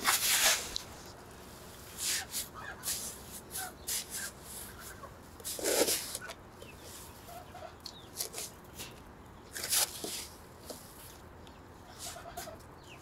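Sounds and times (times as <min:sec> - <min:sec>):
shovel scraping wet mortar: 0:00.0 - 0:00.8, 0:02.0 - 0:04.3, 0:05.4 - 0:06.3
chickens clucking: 0:02.1 - 0:09.0, 0:11.5 - 0:13.0.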